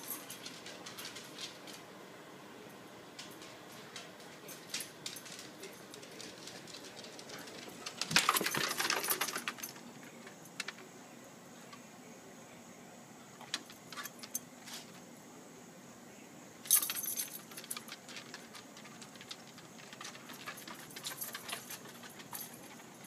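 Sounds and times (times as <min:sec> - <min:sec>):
dog collar tags jingling: 0:03.2 - 0:10.8, 0:16.7 - 0:23.0
claws clicking on wooden boards: 0:16.7 - 0:23.0.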